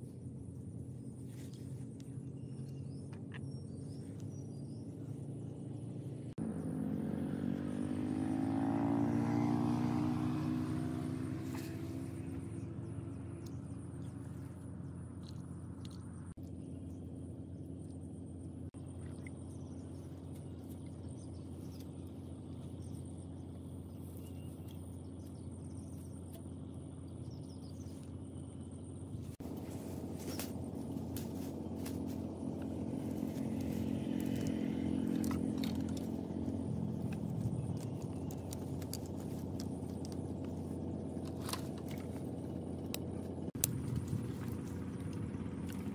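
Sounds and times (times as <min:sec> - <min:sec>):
steady low rumble: 0:00.0 - 0:06.6, 0:11.5 - 0:45.9
faint bird chirps: 0:00.9 - 0:06.7, 0:11.5 - 0:35.1
vehicle engine passing by: 0:03.8 - 0:45.9.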